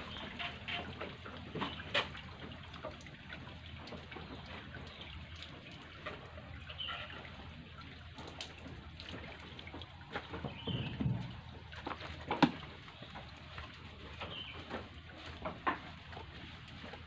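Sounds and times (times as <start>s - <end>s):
water trickling and splashing: 0.0s - 17.0s.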